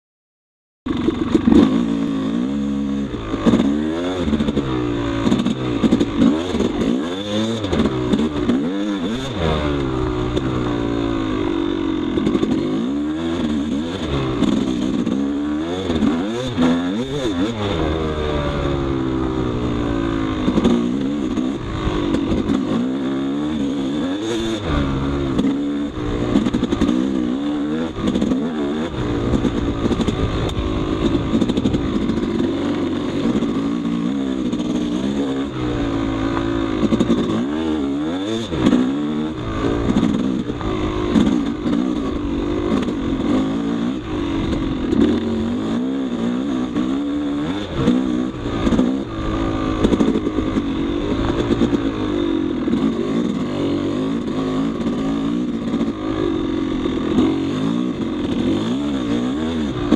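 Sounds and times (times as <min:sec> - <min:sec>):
dirt bike engine revving: 0:00.9 - 0:59.9
bike rattling and clattering: 0:29.1 - 0:35.1.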